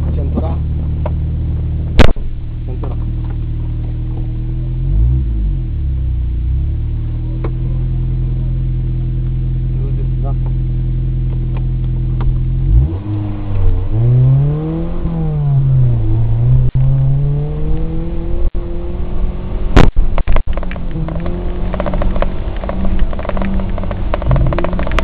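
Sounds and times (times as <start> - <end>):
car engine revving: 0.0 - 25.0
rattling: 19.9 - 25.0.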